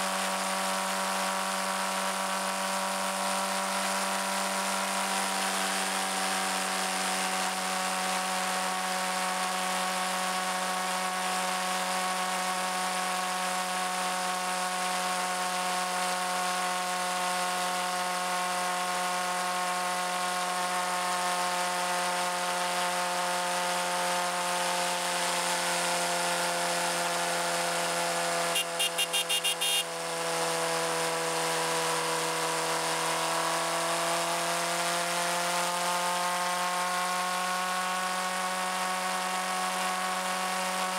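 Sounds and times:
motorcycle engine whine: 0.0 - 40.9.

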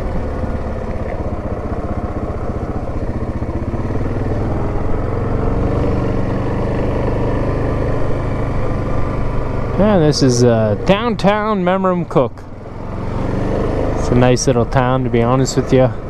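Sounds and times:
quad engine running: 0.0 - 16.0.

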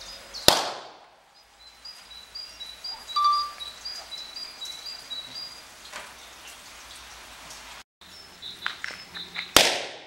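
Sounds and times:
bird singing two-note phrase: 3.1 - 3.7
steady whistle-like tone: 3.2 - 3.6.

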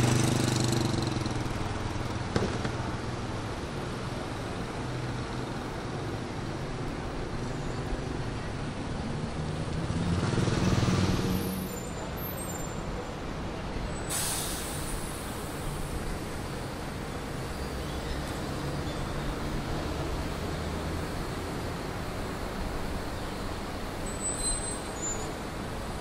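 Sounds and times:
heavy vehicle passing: 0.0 - 2.0, 9.1 - 11.7
city street traffic: 0.0 - 26.0
sudden hiss: 14.1 - 16.2.

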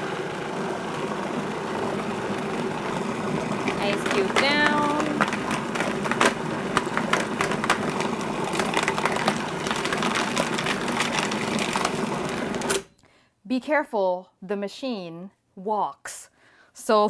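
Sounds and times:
food processor motor hum: 0.0 - 12.9.

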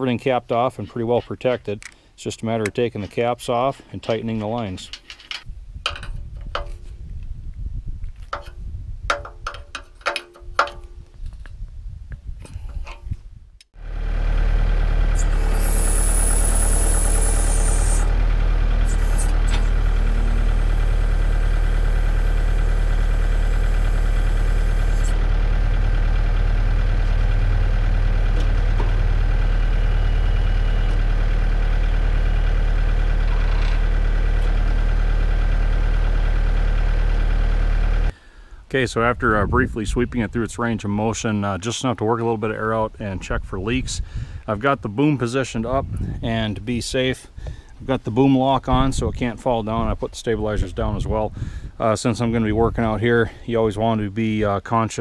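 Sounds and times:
high hydraulic whine: 13.8 - 35.5
tractor diesel engine running: 13.8 - 38.1.

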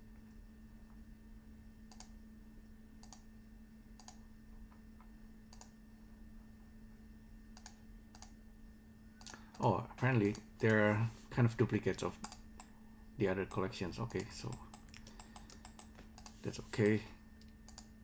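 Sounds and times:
steady low hum: 0.0 - 18.0
computer clicks: 1.9 - 2.2, 3.0 - 3.3, 4.0 - 4.2, 5.5 - 5.8, 7.6 - 8.4, 11.9 - 12.7, 14.0 - 16.5, 17.4 - 18.0.

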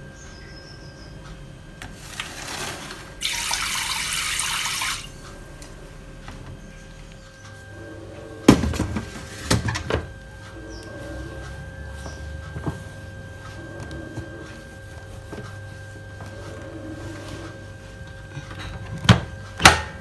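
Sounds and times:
water running from tap: 3.2 - 5.2.

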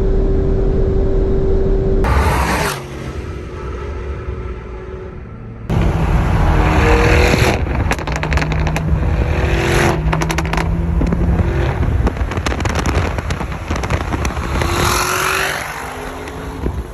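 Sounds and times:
car engine at speed: 0.0 - 16.9
exhaust crackles and pops: 7.2 - 16.9.

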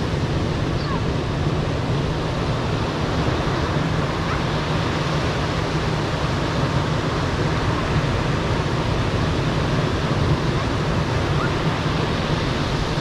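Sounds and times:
ocean surf breaking on beach: 0.0 - 13.0.

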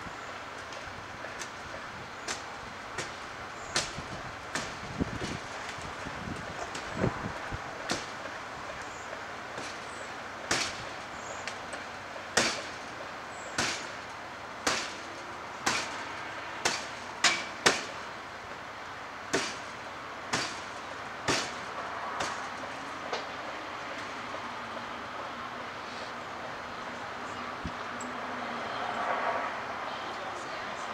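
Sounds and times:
hand tool striking wooden boards: 7.9 - 8.2, 10.5 - 10.8, 12.4 - 12.8, 13.6 - 14.0, 14.6 - 16.0, 16.6 - 18.0, 19.3 - 19.7, 20.3 - 20.7, 21.3 - 22.5.

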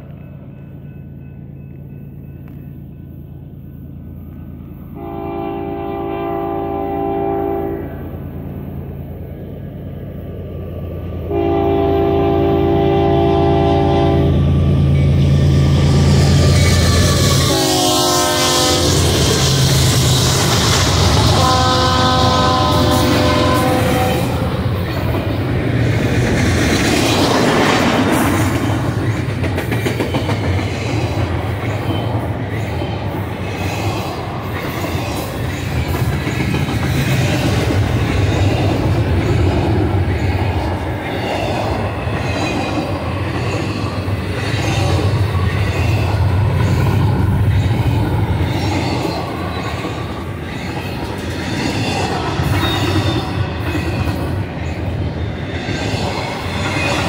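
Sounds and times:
train wheels rumbling on rails: 0.0 - 57.0
clickety-clack over rail joints: 18.5 - 57.0.

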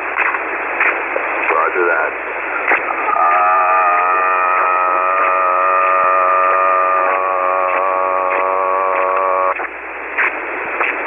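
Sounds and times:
radio receiver hiss: 0.0 - 11.0
man holding long vowel over radio: 3.1 - 9.6.

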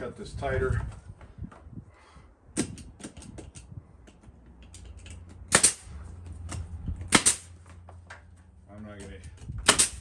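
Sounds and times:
nail gun firing: 5.5 - 5.9, 7.1 - 7.5, 9.6 - 10.0.

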